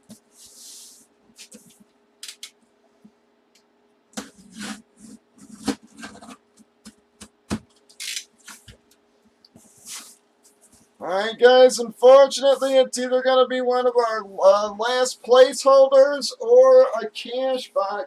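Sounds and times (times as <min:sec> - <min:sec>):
cardboard scraping rustles: 0:04.2 - 0:06.5.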